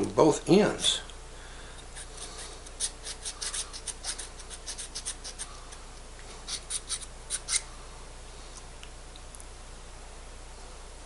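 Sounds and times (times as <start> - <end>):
file rasping on metal: 2.0 - 5.5, 6.5 - 7.6.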